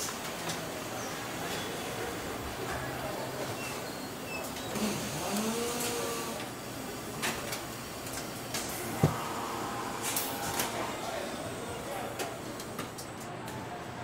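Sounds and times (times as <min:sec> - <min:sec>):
machinery hum: 0:04.8 - 0:14.0.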